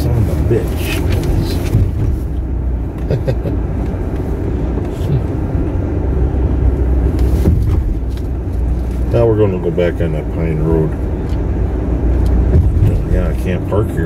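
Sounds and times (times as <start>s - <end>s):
car engine and tyre rumble: 0.0s - 14.0s.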